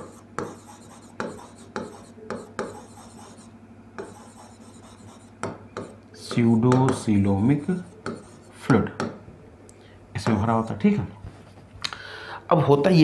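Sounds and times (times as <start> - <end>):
marker pen on whiteboard: 0.0 - 9.2, 10.2 - 11.0.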